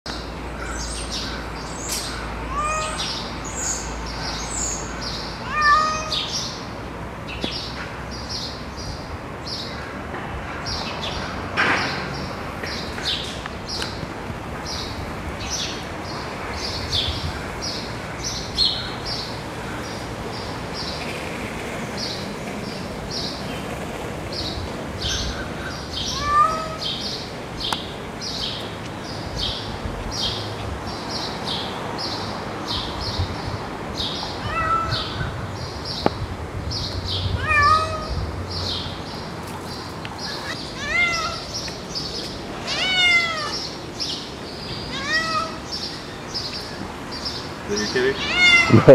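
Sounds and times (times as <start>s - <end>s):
cat meowing: 2.5s - 3.2s, 5.4s - 6.4s, 26.0s - 27.0s, 34.4s - 35.3s, 37.3s - 38.2s, 40.3s - 41.6s, 42.6s - 43.6s, 44.9s - 45.7s, 48.1s - 48.9s.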